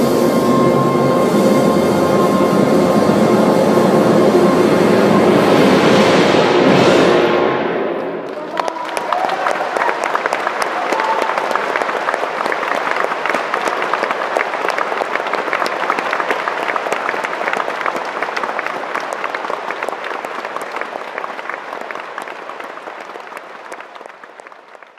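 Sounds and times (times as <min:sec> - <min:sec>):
audience applauding: 0:08.2 - 0:24.9.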